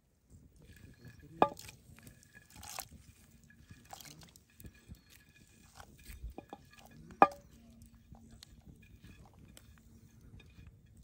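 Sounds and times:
wet squelching: 1.4s - 4.4s.

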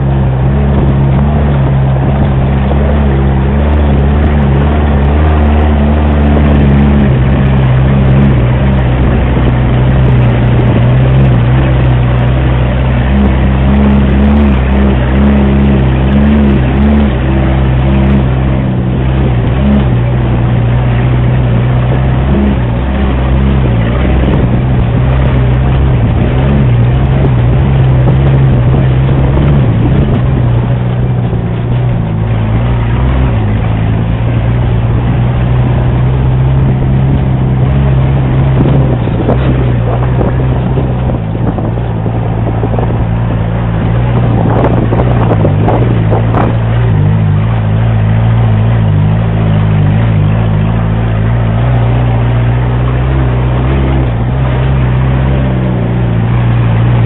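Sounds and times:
off-road vehicle engine drone: 0.0s - 57.0s.

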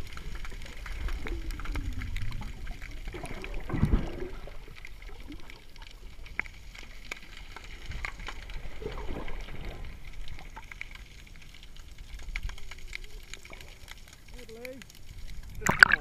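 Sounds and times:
bubbles gurgling: 0.0s - 11.0s, 15.4s - 16.0s
low underwater rumble: 0.0s - 16.0s
underwater clicks and crackles: 0.0s - 16.0s.

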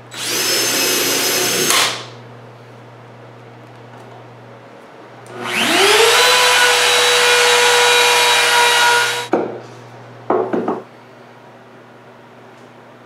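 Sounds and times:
trim router whining: 0.1s - 2.1s, 5.3s - 9.3s.

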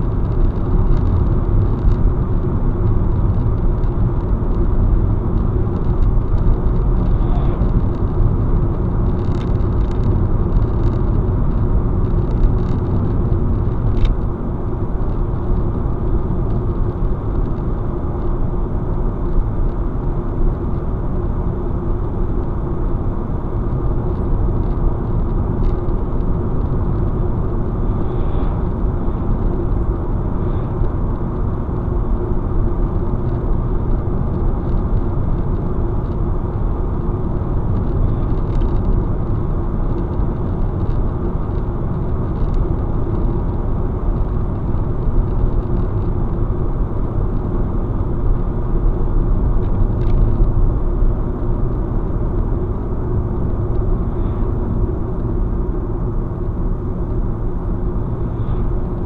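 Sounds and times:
low engine drone: 0.0s - 59.0s
tyre and road noise: 0.0s - 59.0s.

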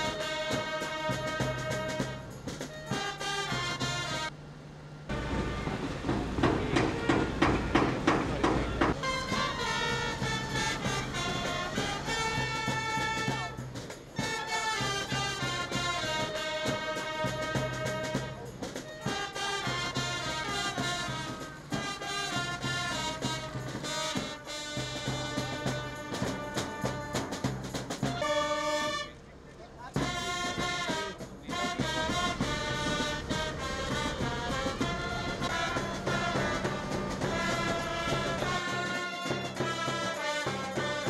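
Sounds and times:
brass music with steady beat: 0.0s - 4.4s, 5.1s - 41.0s.

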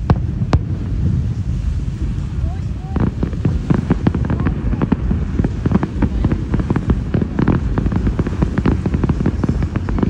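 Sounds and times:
fireworks bangs and crackles: 0.0s - 10.0s
steady low rumble: 0.0s - 10.0s.

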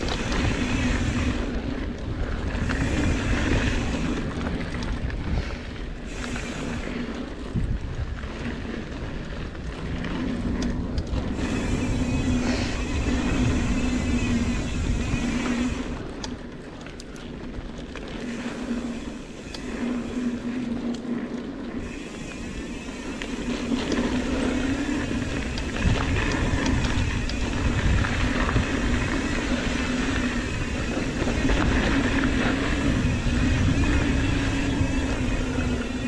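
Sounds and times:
bike rattling over bumps: 0.0s - 36.0s
bike tyres rolling over dirt: 0.0s - 36.0s
wind buffeting microphone: 0.0s - 36.0s
buzzing hum: 9.8s - 16.3s.

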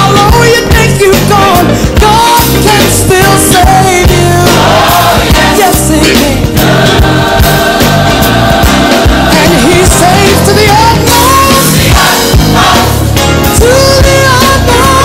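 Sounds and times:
band with steady beat: 0.0s - 15.0s
person singing: 9.3s - 11.8s, 13.6s - 15.0s.

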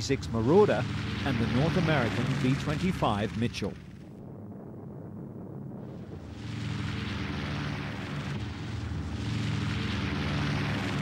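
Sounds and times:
aircraft engines running: 0.0s - 11.0s.

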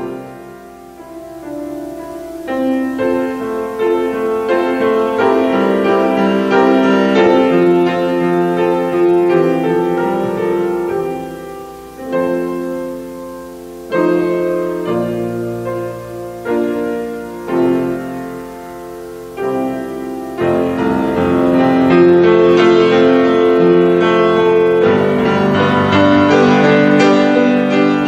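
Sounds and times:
piano playing slow chords: 0.0s - 28.0s.

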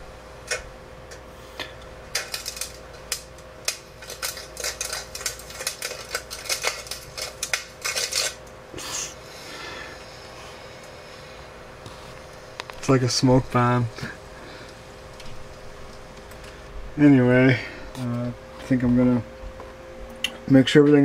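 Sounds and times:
electrical crackling and popping: 0.0s - 9.2s, 11.7s - 21.0s
steady hum: 0.0s - 21.0s.

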